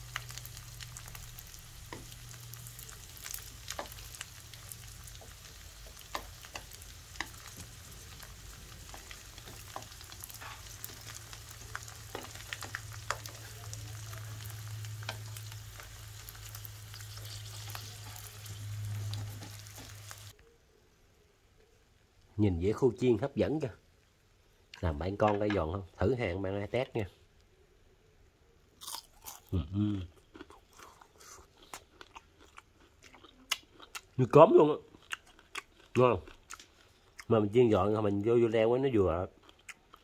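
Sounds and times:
fish frying in oil: 0.0 - 20.4
oil popping and crackling: 0.0 - 20.4.

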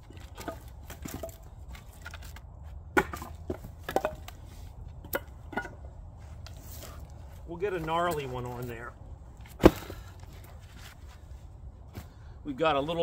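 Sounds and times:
firewood clunking onto pile: 0.0 - 7.2, 9.4 - 10.9.

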